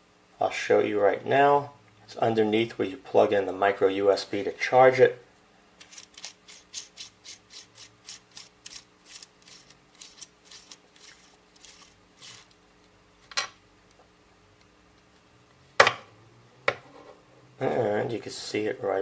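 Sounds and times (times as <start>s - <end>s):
metal threads rasping: 5.8s - 12.6s.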